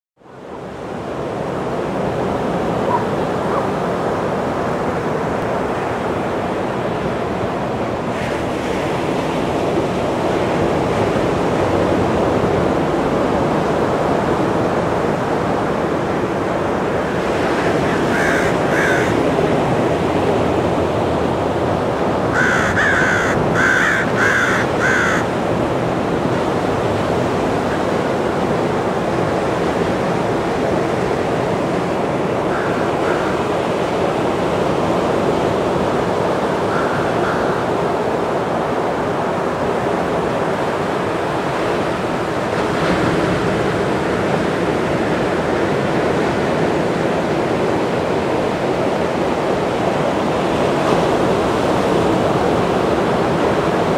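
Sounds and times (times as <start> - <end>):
small waves breaking on beach: 0.2 - 53.9
crow cawing: 18.0 - 19.2, 22.3 - 25.3, 32.5 - 33.4, 36.7 - 37.7.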